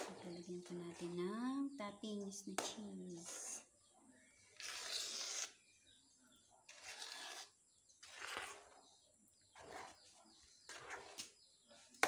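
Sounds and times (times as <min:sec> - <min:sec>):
spoon stirring thick paste: 0:06.6 - 0:12.0.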